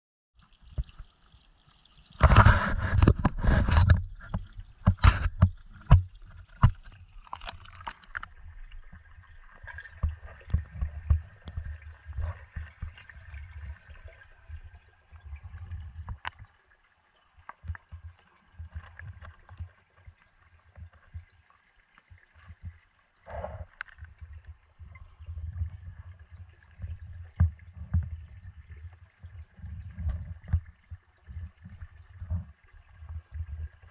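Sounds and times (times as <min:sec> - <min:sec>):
water splashing: 0:00.4 - 0:33.9
muffled underwater knocks and rumbles: 0:02.1 - 0:16.5, 0:22.5 - 0:33.9.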